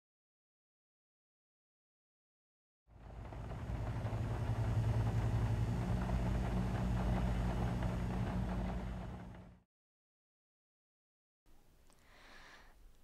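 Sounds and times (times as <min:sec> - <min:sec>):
low rumbling drone: 0:02.9 - 0:09.6.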